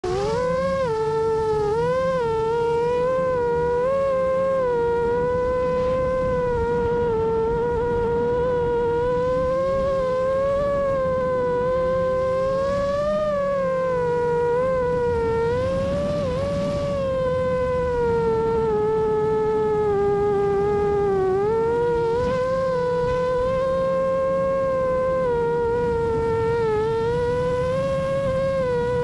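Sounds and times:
drone motors whining: 0.0 - 29.0.

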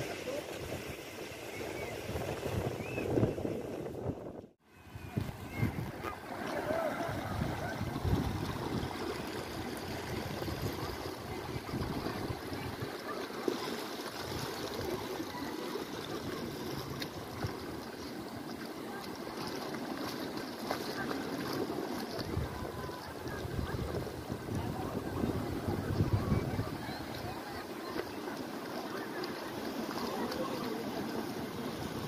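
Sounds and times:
wind gusts on microphone: 0.3 - 12.9, 22.2 - 27.6.

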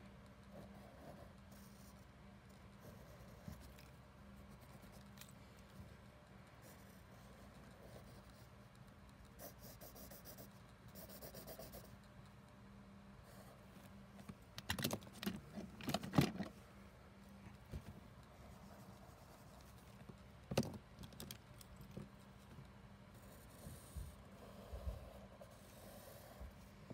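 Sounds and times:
low steady hum: 0.0 - 26.9
pen scratching on paper: 9.2 - 12.0.

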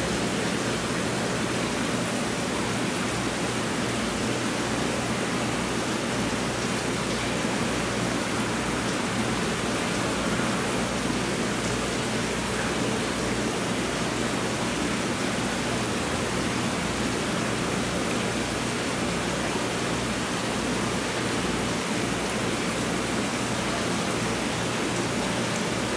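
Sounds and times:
aquarium water rushing: 0.0 - 25.9.

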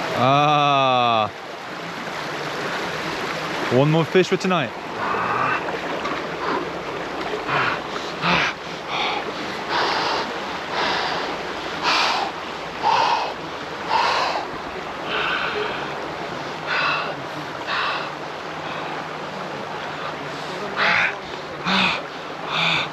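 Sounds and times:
river water rushing: 0.0 - 22.9
swimmer splashing: 2.5 - 22.9
heavy breath: 7.5 - 16.0, 16.6 - 19.0, 20.0 - 22.9.

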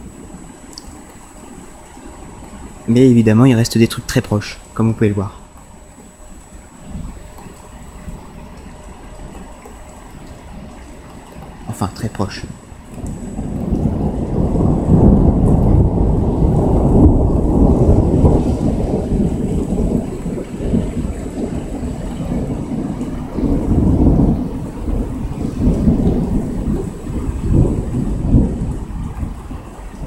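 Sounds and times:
rolling thunder: 6.4 - 30.0.

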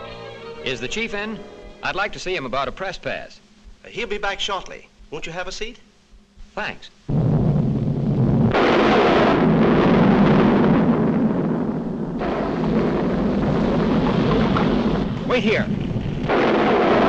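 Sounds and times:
cartoon eruption rumble: 7.1 - 17.0.

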